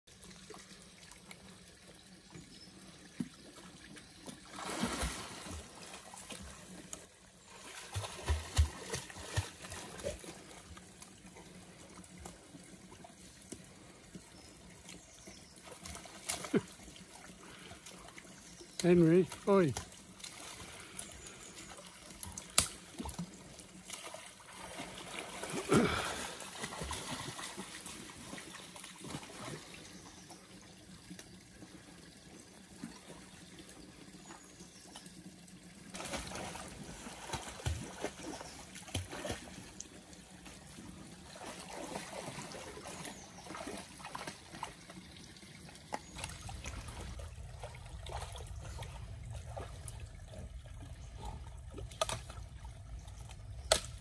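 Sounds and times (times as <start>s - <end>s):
water sloshing and trickling: 0.1s - 54.0s
dog splashing in water: 7.6s - 10.4s, 35.9s - 39.8s
low rumble: 46.4s - 54.0s.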